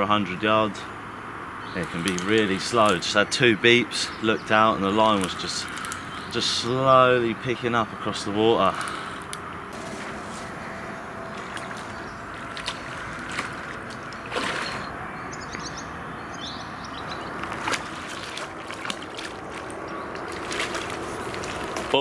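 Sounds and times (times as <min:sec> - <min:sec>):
water splashing and sloshing: 0:01.8 - 0:03.4, 0:04.1 - 0:07.2, 0:08.0 - 0:15.7, 0:16.9 - 0:22.0.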